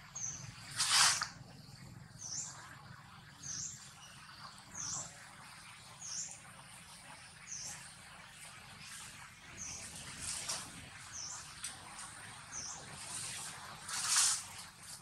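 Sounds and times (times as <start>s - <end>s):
bird chirping: 0.2s - 0.5s.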